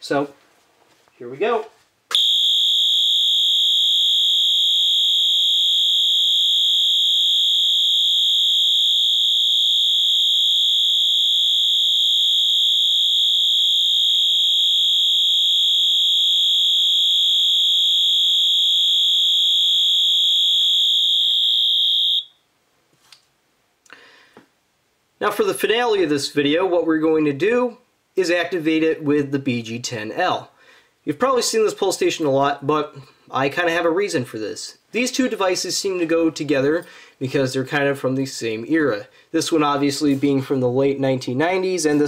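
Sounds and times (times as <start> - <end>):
fire alarm horn tone: 2.1 - 22.3.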